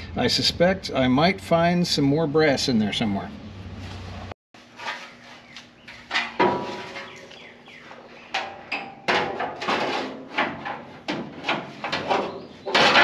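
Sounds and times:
sheet metal knocks and clunks: 0:06.0 - 0:07.3, 0:08.3 - 0:13.0.

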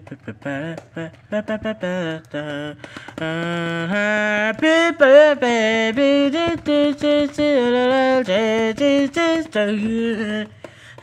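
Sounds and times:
person singing wordless tune: 0:00.0 - 0:11.0.

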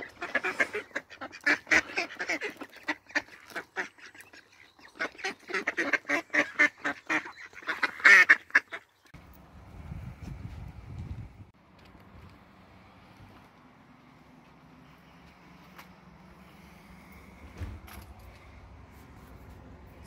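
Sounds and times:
ducks quacking: 0:00.0 - 0:09.1.

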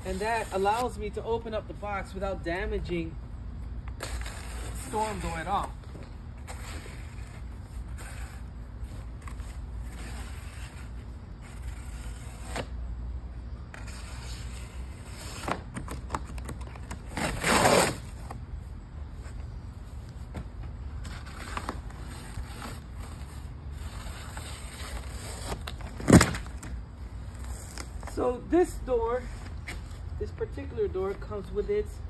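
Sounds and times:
cardboard tearing rip: 0:04.0 - 0:05.7, 0:09.2 - 0:12.8, 0:13.7 - 0:18.3, 0:21.0 - 0:26.7
cardboard scraping and rustling: 0:19.2 - 0:28.2.

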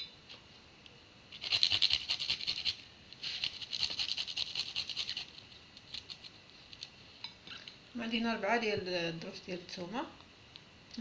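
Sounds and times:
garlic rasping on a metal grater: 0:01.4 - 0:06.2.

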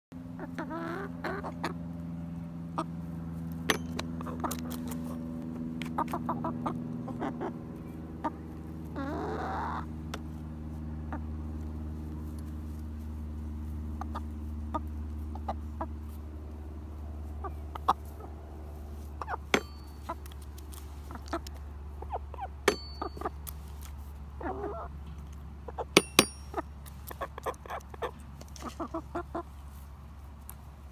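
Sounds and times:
steady low hum: 0:00.2 - 0:30.9
hen calling: 0:05.9 - 0:09.9
taps on xylophone bars: 0:26.0 - 0:26.6.

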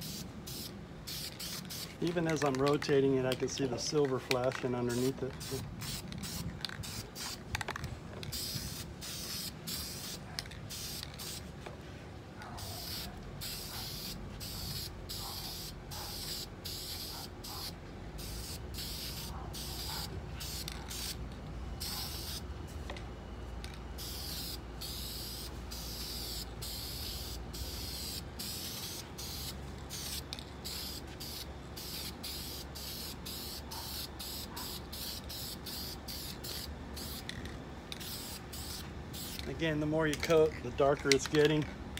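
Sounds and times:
spray can hissing in bursts: 0:00.0 - 0:02.1, 0:04.9 - 0:07.4, 0:08.3 - 0:11.4, 0:12.6 - 0:21.2, 0:21.8 - 0:22.4, 0:24.0 - 0:37.3, 0:38.0 - 0:39.5.

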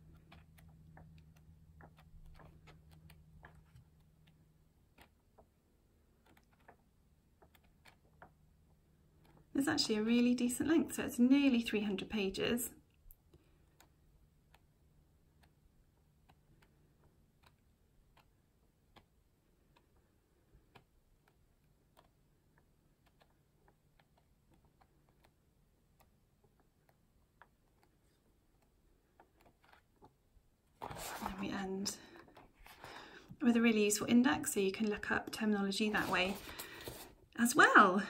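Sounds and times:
book pages flicking: 0:30.8 - 0:31.4.

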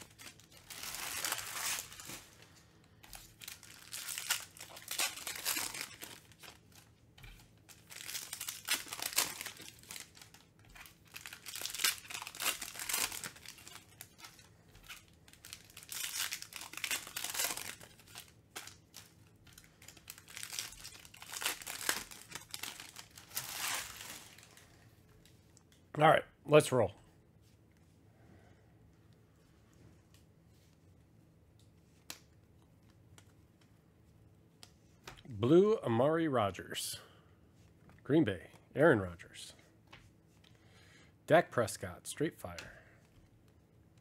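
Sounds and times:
foil wrappers tearing and crinkling: 0:00.0 - 0:02.4, 0:03.0 - 0:24.6.

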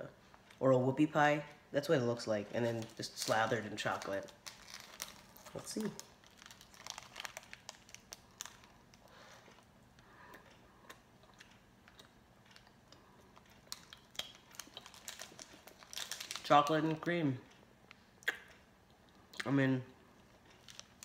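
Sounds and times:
foil snack wrapper crinkling: 0:02.6 - 0:09.3, 0:13.7 - 0:16.8, 0:20.5 - 0:21.0.

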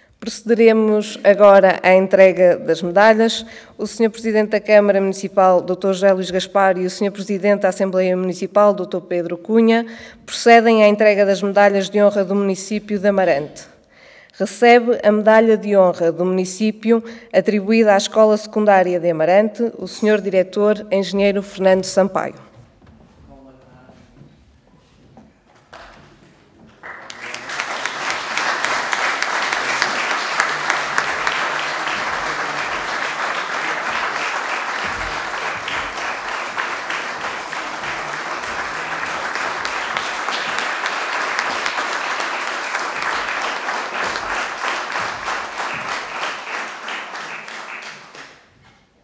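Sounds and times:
audience applauding: 0:26.7 - 0:48.5.

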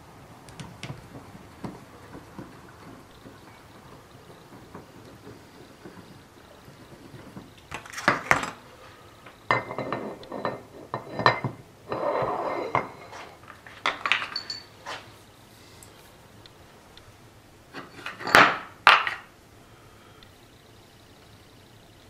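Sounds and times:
metal parts rubbing and sliding: 0:00.7 - 0:09.0, 0:09.7 - 0:15.2, 0:17.7 - 0:18.5
metal clinks and knocks: 0:09.5 - 0:15.1, 0:17.8 - 0:19.3.

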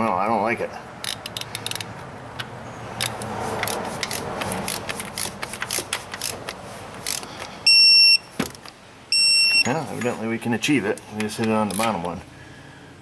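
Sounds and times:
torque wrench ratchet clicking: 0:01.0 - 0:01.9, 0:03.0 - 0:07.3
socket scraping on engine parts: 0:01.0 - 0:08.8, 0:09.8 - 0:12.2.

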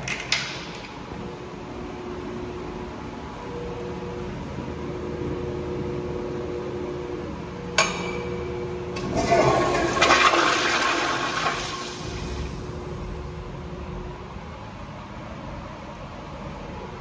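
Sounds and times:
toilet flushing water rush: 0:09.0 - 0:12.7.

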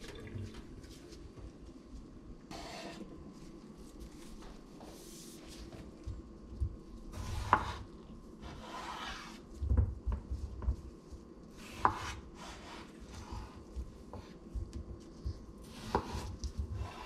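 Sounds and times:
knife slicing potatoes: 0:07.1 - 0:09.4, 0:11.5 - 0:14.4, 0:15.6 - 0:17.0.

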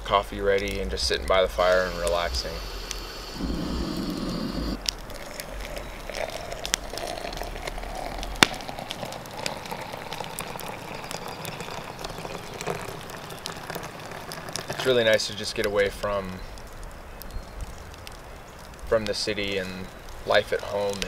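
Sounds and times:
gas burner humming: 0:01.6 - 0:04.9
water pouring into glass: 0:02.0 - 0:14.8.

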